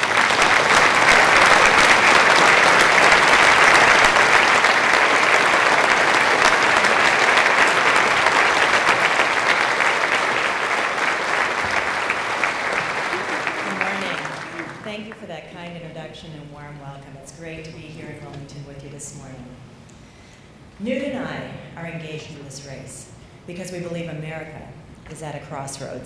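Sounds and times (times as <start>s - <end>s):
audience applauding: 0.0s - 14.9s.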